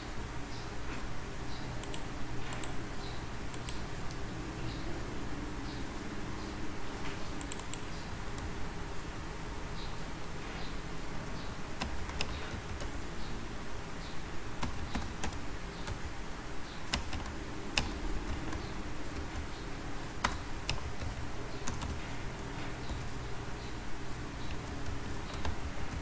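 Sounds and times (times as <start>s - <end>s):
low background hum: 0.0s - 26.0s
keyboard keys clicking: 1.8s - 2.8s, 7.1s - 8.6s, 11.8s - 13.0s, 14.6s - 16.1s, 16.9s - 19.6s, 20.2s - 23.2s, 24.4s - 26.0s.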